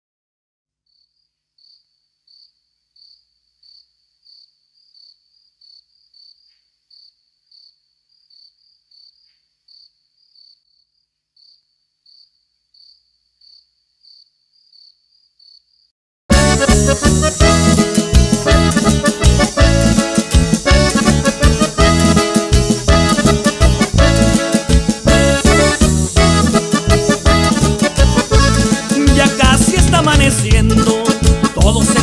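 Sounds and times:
cricket chirping: 0:00.9 - 0:15.9.

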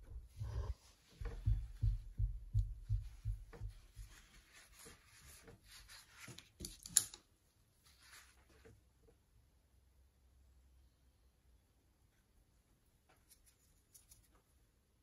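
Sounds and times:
brush dabbing paint: 0:00.0 - 0:06.7
brush scraping and tapping: 0:00.0 - 0:07.2, 0:13.1 - 0:14.6.

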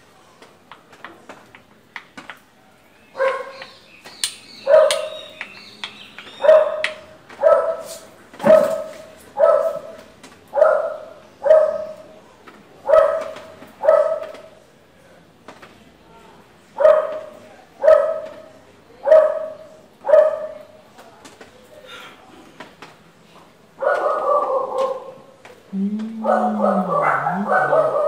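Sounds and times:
dog barking: 0:03.2 - 0:03.7, 0:04.6 - 0:05.2, 0:06.4 - 0:12.1, 0:12.8 - 0:14.4, 0:16.8 - 0:20.7, 0:23.8 - 0:25.2, 0:26.2 - 0:28.0.

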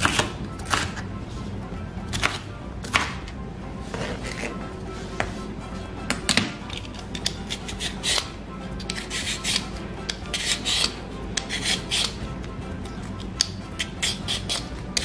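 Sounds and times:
peeler scraping potato skin: 0:00.0 - 0:01.1, 0:06.6 - 0:12.3, 0:13.2 - 0:15.0.

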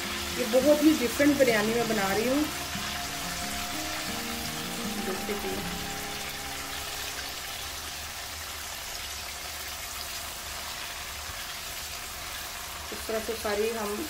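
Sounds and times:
chicken sizzling in oil: 0:00.0 - 0:14.0.

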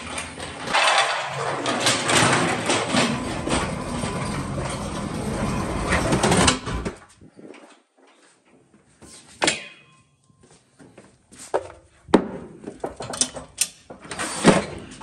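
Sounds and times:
scraping and rustling: 0:00.0 - 0:08.4.

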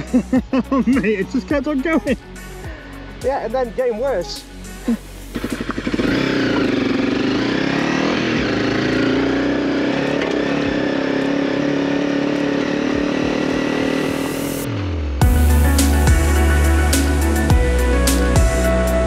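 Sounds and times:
motorcycle engine revving: 0:04.6 - 0:18.6.

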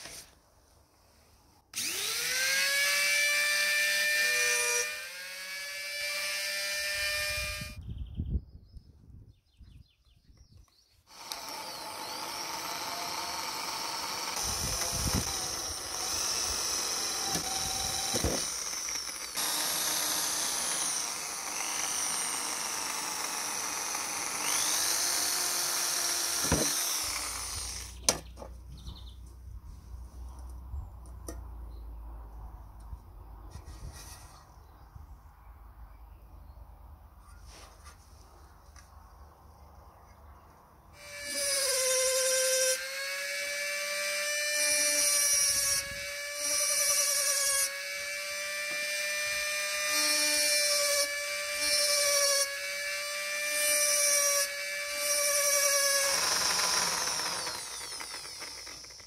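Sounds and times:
electric drill boring into tin: 0:01.8 - 0:07.8, 0:11.1 - 0:28.1, 0:41.0 - 0:59.0.

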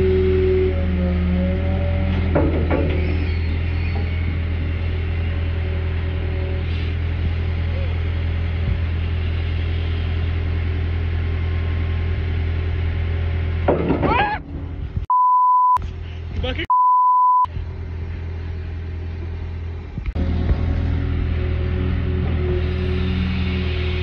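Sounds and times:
excavator engine humming: 0:00.0 - 0:24.0
censor beeps: 0:15.1 - 0:15.8, 0:16.7 - 0:17.5.

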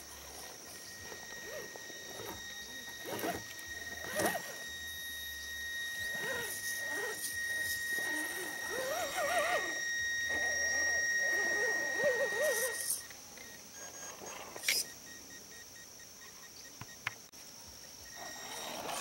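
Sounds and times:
wavering vocal calls: 0:00.0 - 0:13.1
electric motor whining: 0:00.0 - 0:15.3, 0:17.9 - 0:19.0.

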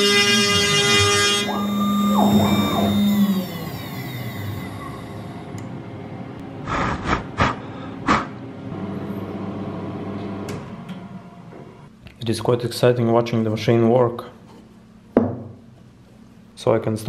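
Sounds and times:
router spindle whining: 0:00.0 - 0:05.6
stepper motors tones: 0:00.0 - 0:06.8.

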